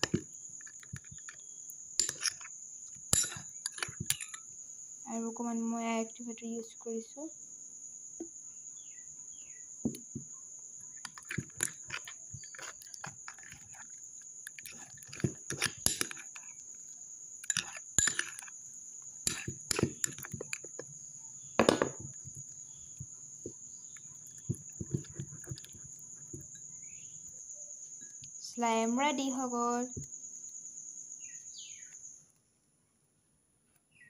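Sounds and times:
crickets chirping: 0.0s - 34.0s.

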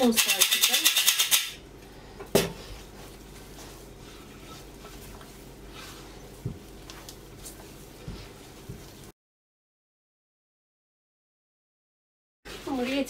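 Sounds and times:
dough squishing: 2.6s - 9.1s.

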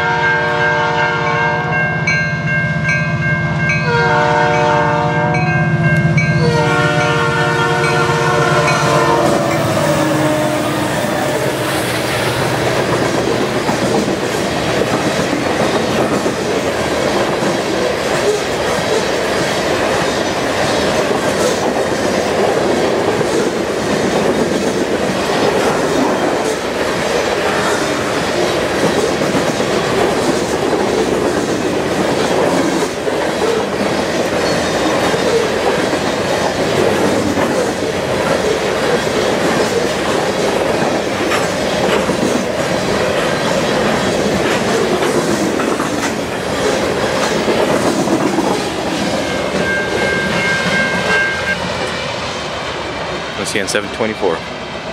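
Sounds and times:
steel wheels rolling on rail: 1.7s - 54.9s
wheels clacking over rail joints: 8.6s - 52.0s.

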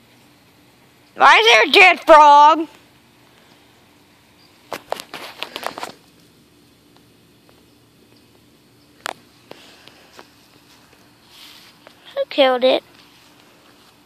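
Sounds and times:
footsteps in grass and dry leaves: 9.0s - 14.0s.

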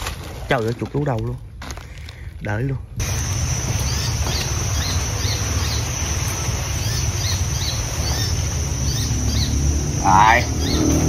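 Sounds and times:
bird chirps: 3.0s - 11.0s
insect drone: 3.0s - 11.0s.

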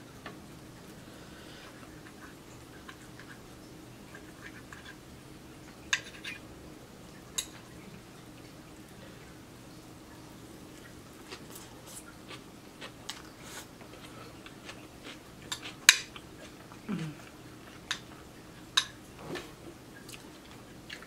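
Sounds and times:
person chewing: 10.7s - 18.7s.

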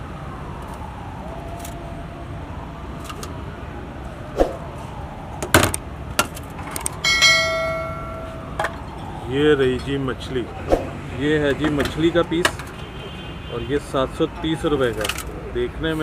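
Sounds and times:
bell-like ding: 7.0s - 8.4s.

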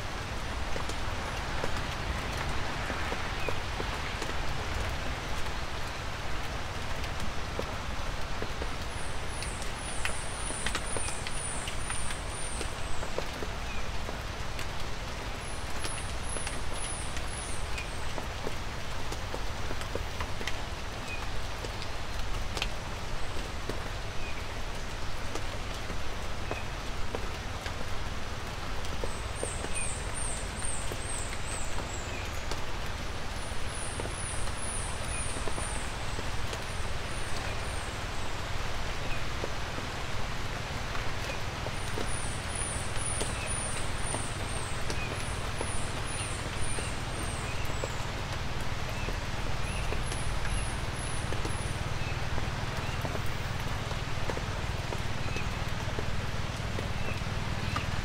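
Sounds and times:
light rain hissing: 0.0s - 58.0s
raindrops clicking: 0.3s - 40.0s, 40.8s - 58.0s.

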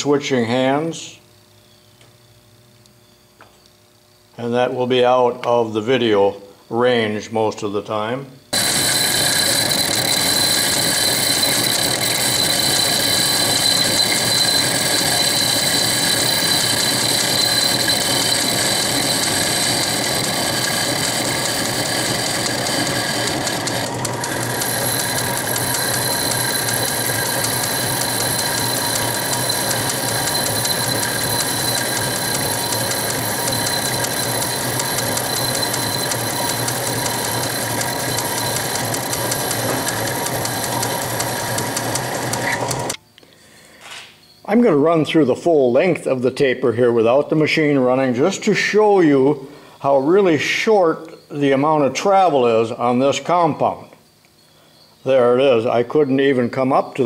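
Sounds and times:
lathe gearing whirring: 8.5s - 43.0s
tool cutting metal bar: 8.6s - 43.0s.

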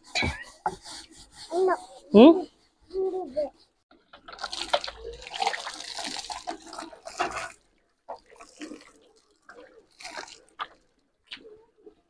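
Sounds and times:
water pouring from bucket: 4.3s - 10.8s
water splashing: 4.3s - 11.4s.

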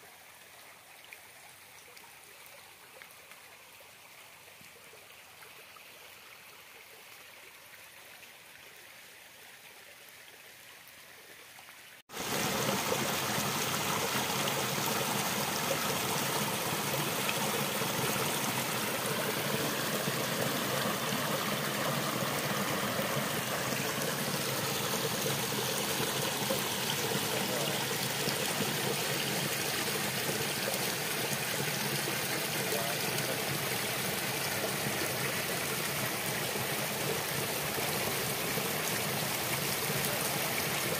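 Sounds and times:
stream water flowing: 0.0s - 40.9s
water splashing over stones: 12.1s - 40.9s.

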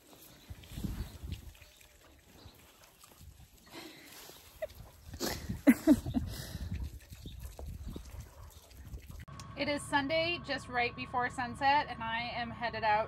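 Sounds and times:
calf snuffling: 0.0s - 9.2s.

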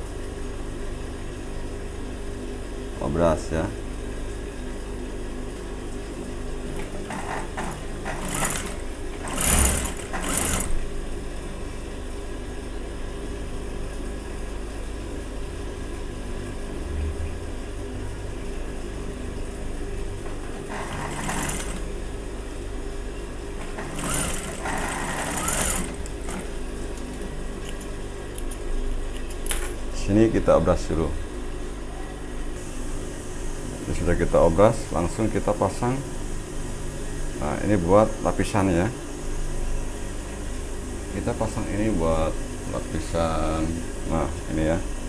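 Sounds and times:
sewing machine stitching: 6.8s - 10.8s, 20.7s - 21.9s, 23.7s - 26.6s
sewing machine motor humming: 6.8s - 10.9s, 20.7s - 21.9s, 23.6s - 27.2s, 32.6s - 34.7s.

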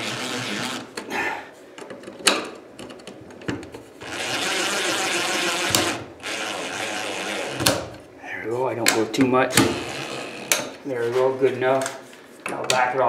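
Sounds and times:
cordless drill driving screws: 0.0s - 0.9s, 4.0s - 7.9s, 9.6s - 10.7s.

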